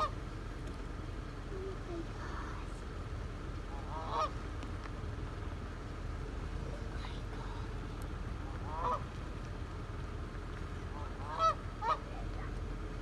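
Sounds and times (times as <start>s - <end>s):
goose honking: 0.0s - 0.2s, 3.7s - 4.4s, 8.4s - 9.2s, 10.8s - 12.3s
steady low rumble: 0.0s - 13.0s.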